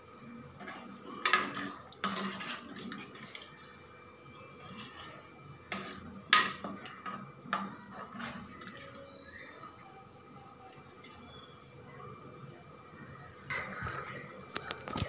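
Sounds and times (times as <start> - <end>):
ladle scraping clay pot: 0.6 - 3.6, 4.4 - 9.8.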